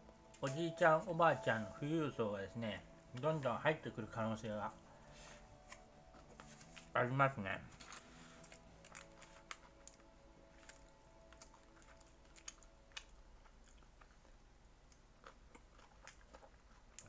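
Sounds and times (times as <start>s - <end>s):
quiet chewing: 7.7s - 17.0s.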